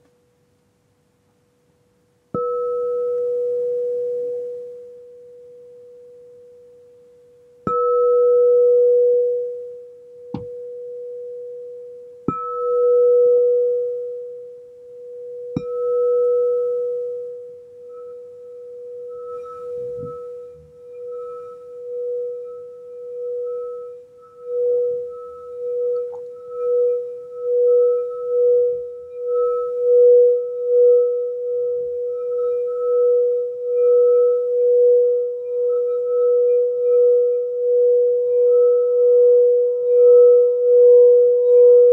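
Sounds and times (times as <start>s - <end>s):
singing bowl struck with mallet: 2.4s - 4.7s, 7.6s - 9.6s, 10.3s - 10.9s, 12.3s - 14.2s, 15.3s - 31.1s
mallet circling singing bowl rim: 15.3s - 41.9s.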